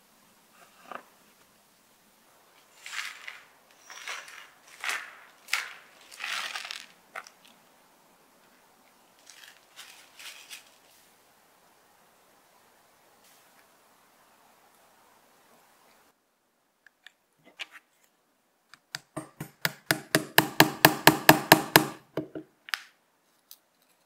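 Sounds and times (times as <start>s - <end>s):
small metal parts clattering: 2.7s - 7.3s.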